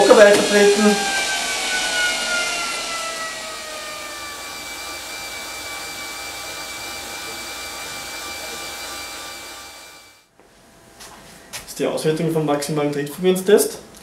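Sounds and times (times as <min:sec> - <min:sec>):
exercise bike whining: 0:00.0 - 0:10.3.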